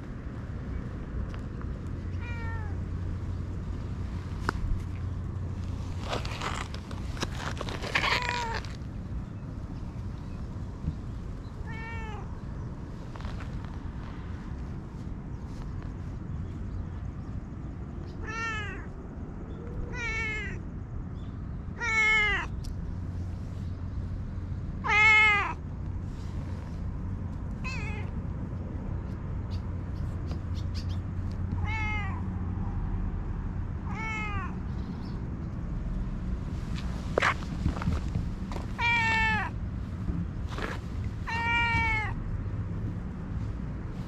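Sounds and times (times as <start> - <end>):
steady low rumble: 0.0 - 44.0
cat meowing: 2.1 - 2.8, 8.0 - 8.7, 11.6 - 12.3, 18.2 - 18.9, 19.9 - 20.6, 21.8 - 22.5, 24.8 - 25.6, 27.6 - 28.1, 31.6 - 32.2, 33.8 - 34.6, 38.8 - 39.5, 41.3 - 42.2.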